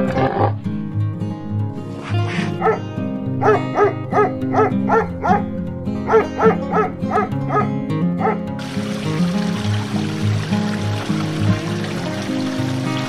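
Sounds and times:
background music: 0:00.0 - 0:13.0
dog barking: 0:02.0 - 0:02.8, 0:03.4 - 0:08.4.

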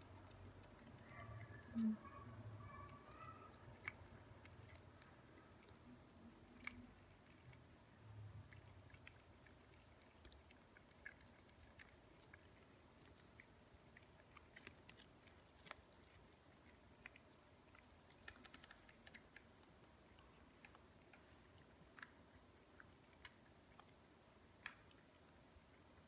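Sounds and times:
cats licking and lapping: 0:00.0 - 0:26.0.

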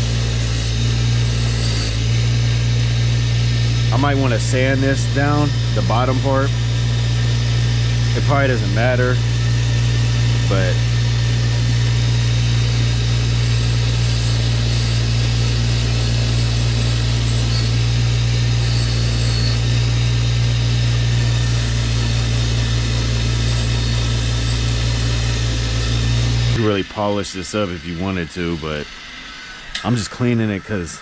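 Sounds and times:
bench grinder motor humming: 0:00.0 - 0:31.0.

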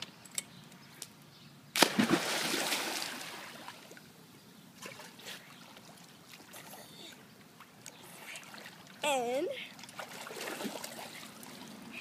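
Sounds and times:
splash into swimming pool: 0:01.8 - 0:03.8.

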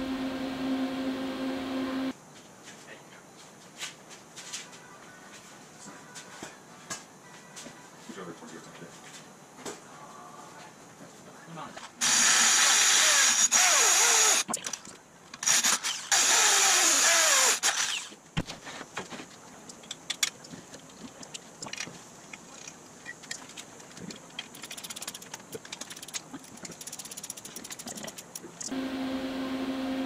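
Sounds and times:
electric drill boring through metal: 0:12.0 - 0:14.5, 0:15.4 - 0:18.2.

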